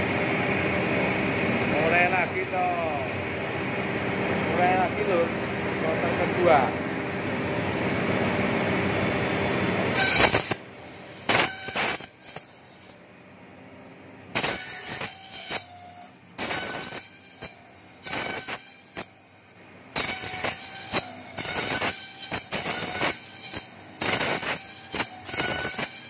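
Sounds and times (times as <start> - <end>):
bamboo planer machine grinding: 9.7 - 13.0, 14.3 - 26.0
sharp cutting bursts: 9.8 - 13.0, 14.3 - 26.0.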